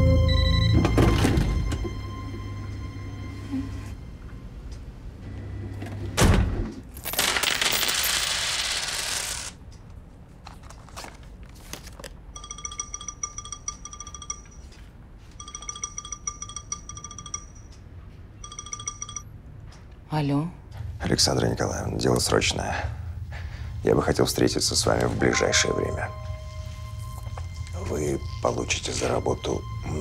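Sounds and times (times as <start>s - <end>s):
phone ringing with electronic ringtone: 12.4s - 17.7s, 18.4s - 19.3s, 25.4s - 30.0s.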